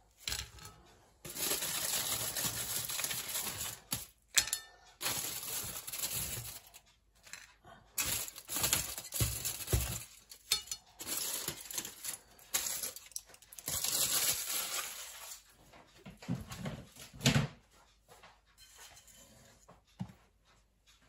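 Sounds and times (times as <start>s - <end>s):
aluminium foil crinkling: 0.2s - 15.5s.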